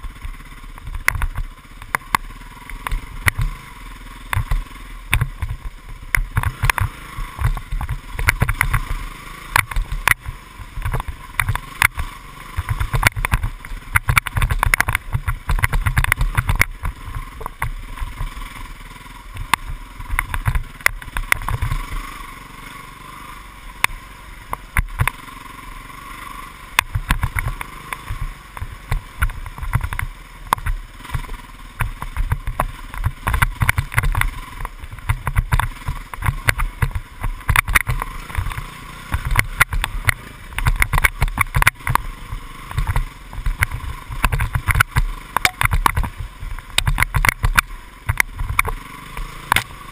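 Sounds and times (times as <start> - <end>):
muffled dirt bike engine: 0.0 - 49.9
bike thumps and knocks: 4.3 - 8.9, 12.6 - 18.4, 26.8 - 42.1, 42.7 - 48.8.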